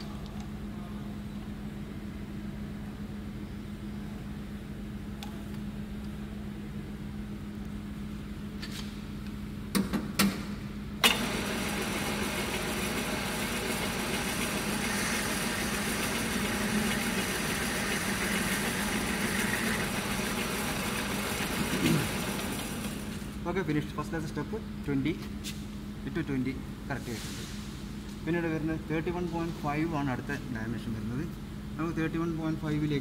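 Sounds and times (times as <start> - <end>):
lathe motor hum: 11.0 - 23.6.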